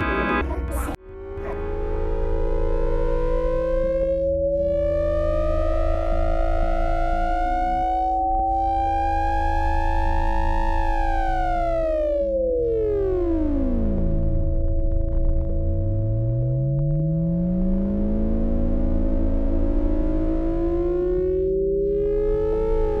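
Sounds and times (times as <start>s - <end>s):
synthesized sliding tone: 0.0s - 11.4s
steady held electronic tones: 0.0s - 13.5s
low hum: 0.0s - 23.0s.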